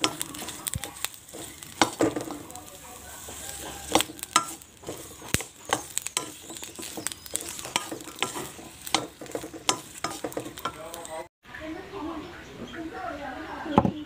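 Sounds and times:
wooden spatula scraping a wok: 0.0s - 11.3s
faint sizzle: 0.0s - 12.2s.

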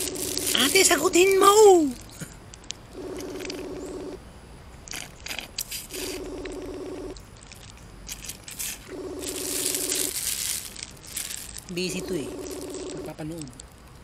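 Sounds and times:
phone ringback tone: 0.0s - 1.6s, 2.9s - 4.2s, 6.0s - 7.2s, 8.9s - 10.2s, 11.7s - 13.2s.

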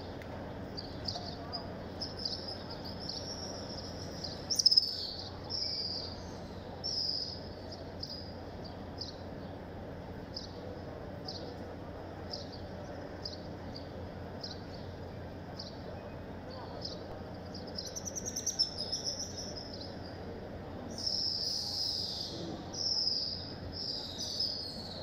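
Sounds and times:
small birds chirping: 0.0s - 9.6s, 10.2s - 25.0s
murmur of large crowd: 0.0s - 25.0s.

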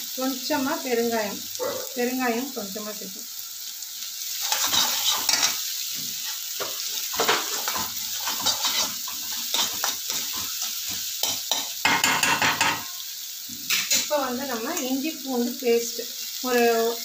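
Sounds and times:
vegetables sizzling in oil: 0.0s - 17.0s
metal spatula scraping pan: 4.4s - 5.6s, 6.2s - 10.6s.

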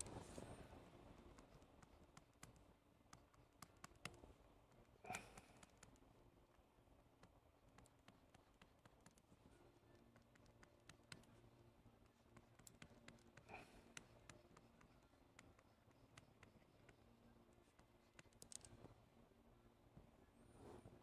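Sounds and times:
faint steady hum: 0.0s - 21.0s
stylus tapping on screen: 7.2s - 11.4s, 12.0s - 17.0s.

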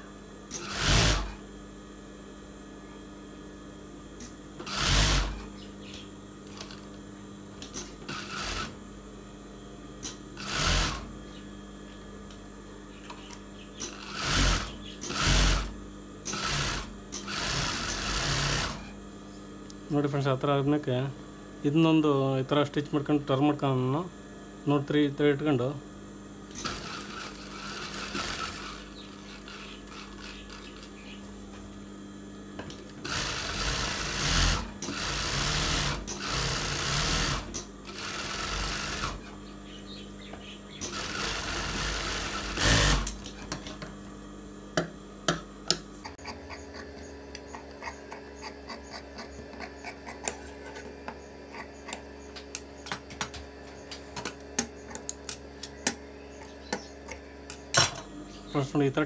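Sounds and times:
steady hum: 0.0s - 59.0s
sewing machine stitching: 0.5s - 1.4s, 4.6s - 5.4s, 7.7s - 8.7s, 10.4s - 11.0s, 13.8s - 15.7s, 16.3s - 18.8s, 26.5s - 30.8s, 33.0s - 39.3s, 40.8s - 43.4s.

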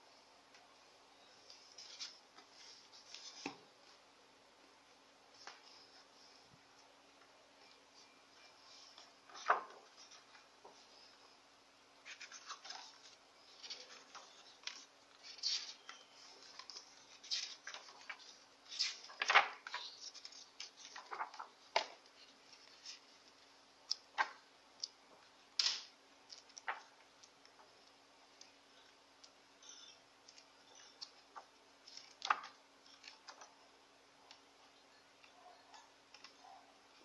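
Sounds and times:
book pages turning: 1.4s - 4.0s, 7.6s - 11.3s, 12.0s - 29.4s, 30.2s - 33.6s.

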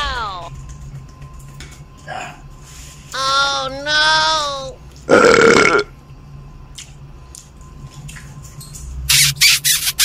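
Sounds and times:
man burping: 5.1s - 5.9s.

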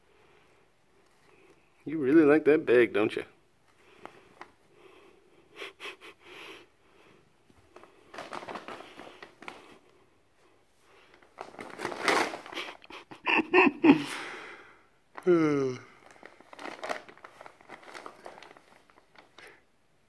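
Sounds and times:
paper bag rustling and crinkling: 7.6s - 9.9s, 10.9s - 12.8s, 16.0s - 19.6s.

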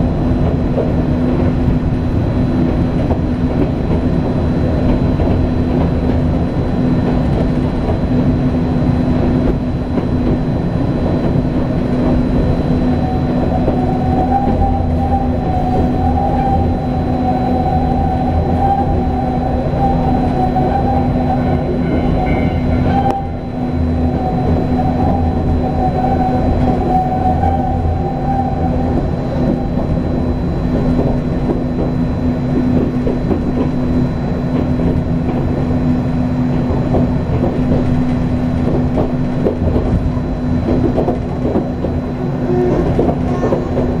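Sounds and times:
high whine: 0.0s - 44.0s
train hum and rumble: 0.0s - 44.0s
wheels clattering on track: 28.7s - 44.0s.

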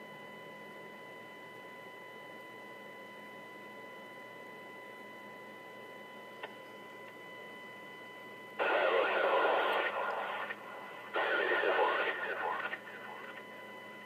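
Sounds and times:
faint high whine: 0.0s - 14.0s
static-heavy radio transmissions: 8.6s - 13.7s.

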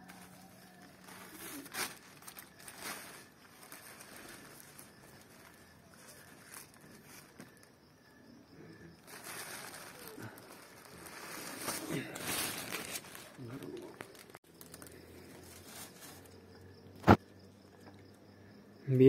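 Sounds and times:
tissue paper rustling: 0.0s - 7.6s, 9.0s - 16.4s.

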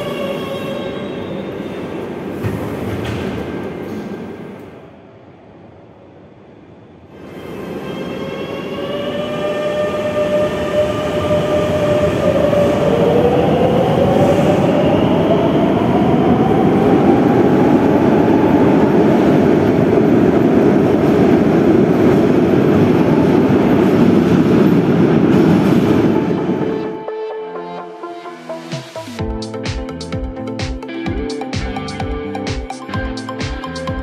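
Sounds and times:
electric train hum: 0.0s - 34.0s
train rolling rumble: 7.1s - 27.0s.

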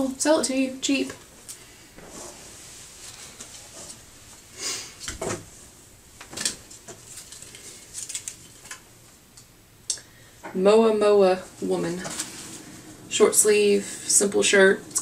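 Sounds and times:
fabric and plastic packaging rustling: 6.3s - 8.9s, 11.4s - 12.9s.

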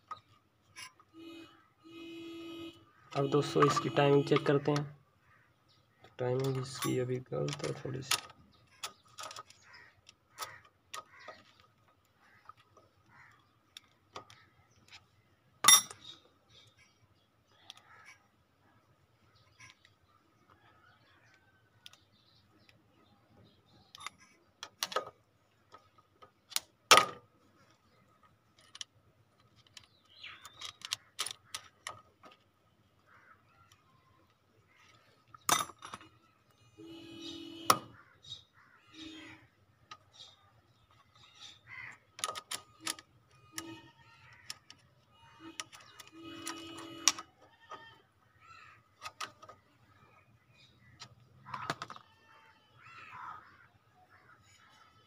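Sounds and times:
bird calls: 2.8s - 15.3s, 15.9s - 25.0s, 29.6s - 55.0s
metal clicks and knocks: 3.1s - 4.9s, 6.0s - 15.0s, 23.9s - 27.3s, 28.2s - 32.6s, 33.7s - 36.2s, 42.1s - 47.9s, 49.0s - 49.6s.

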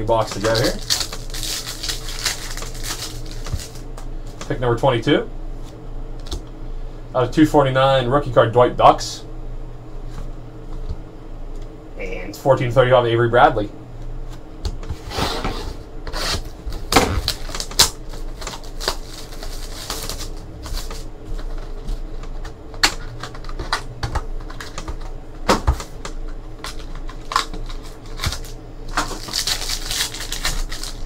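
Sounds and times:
packaging rustling: 0.2s - 3.9s, 16.7s - 25.1s, 26.6s - 31.0s
trading cards being flipped: 16.2s - 25.1s.

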